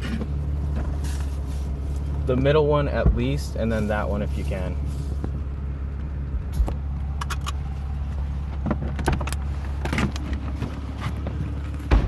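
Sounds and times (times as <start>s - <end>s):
car engine idling: 0.0s - 12.0s
car door clicks and clunks: 8.6s - 12.0s.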